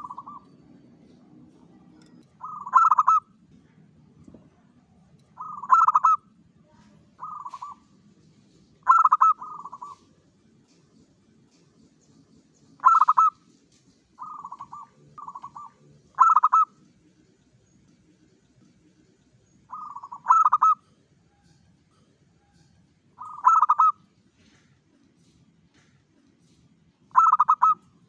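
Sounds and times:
dove cooing: 0.0 - 0.5, 2.4 - 3.3, 5.4 - 6.2, 7.2 - 7.8, 8.8 - 10.1, 12.8 - 13.4, 14.2 - 16.8, 19.7 - 20.9, 23.2 - 24.0, 27.1 - 27.8.

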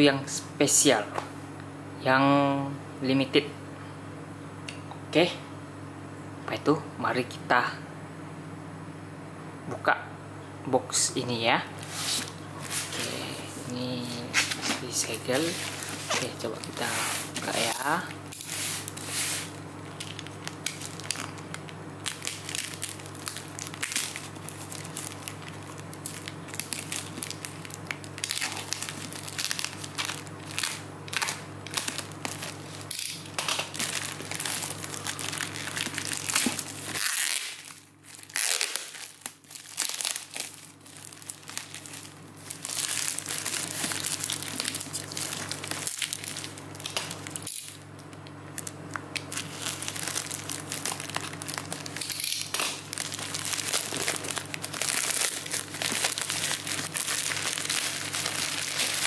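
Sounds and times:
steady low hum: 0.0 - 59.0
plastic packaging crinkling and tearing: 11.8 - 59.0.

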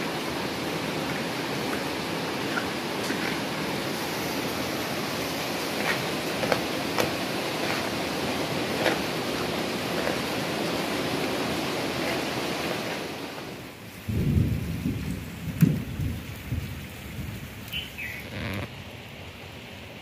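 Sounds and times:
steady rushing hiss: 0.0 - 20.0
wind rumbling on microphone: 14.0 - 18.7.

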